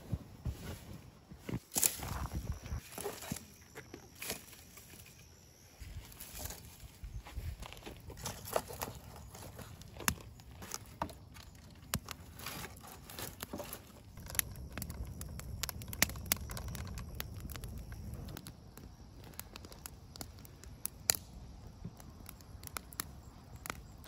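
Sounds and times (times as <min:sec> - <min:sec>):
campfire crackling and popping: 0:07.6 - 0:24.0.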